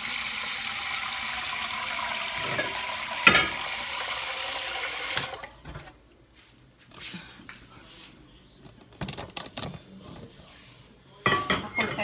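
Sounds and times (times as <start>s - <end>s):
tap water running into metal pot: 0.0s - 5.9s.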